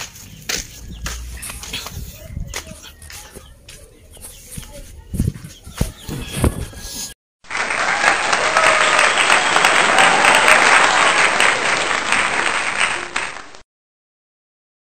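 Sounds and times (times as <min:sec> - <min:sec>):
crowd applause: 0:07.4 - 0:13.6.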